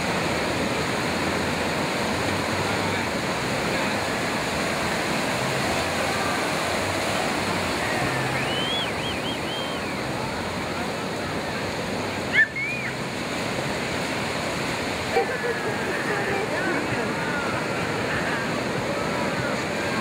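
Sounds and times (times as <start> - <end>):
ocean surf breaking: 0.0 - 20.0
faint high calls: 7.7 - 10.0.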